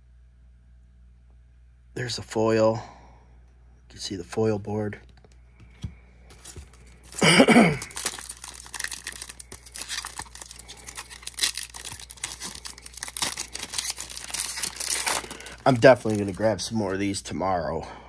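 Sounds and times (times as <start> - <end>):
wrapper tearing and crinkling: 6.4 - 16.9.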